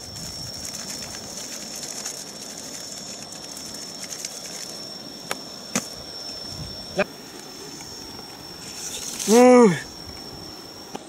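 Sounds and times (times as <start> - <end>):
banana leaves crackling: 0.0 - 6.0, 8.6 - 9.5
steady outdoor hiss: 0.0 - 11.0
thin high-pitched whine: 0.0 - 11.0.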